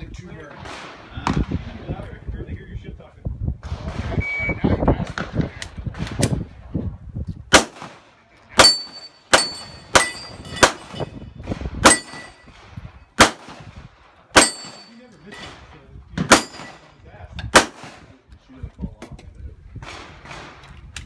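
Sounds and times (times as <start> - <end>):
pistol shots: 7.5 - 8.0, 11.8 - 12.6, 13.2 - 13.7, 16.2 - 16.9, 17.5 - 18.1
metallic ring of steel targets: 8.4 - 13.2, 14.3 - 15.6, 16.3 - 17.0.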